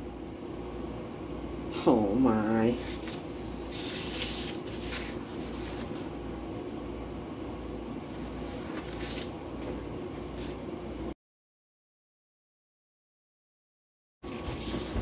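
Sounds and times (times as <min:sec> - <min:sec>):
fan humming: 0:00.0 - 0:11.2, 0:14.2 - 0:15.0
paper plate rustling: 0:02.8 - 0:06.2, 0:08.1 - 0:09.4, 0:14.3 - 0:15.0.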